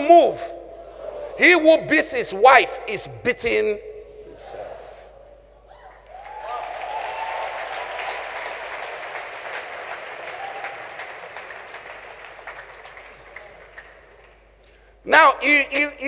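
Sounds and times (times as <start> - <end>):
large crowd applauding: 6.0 - 14.6.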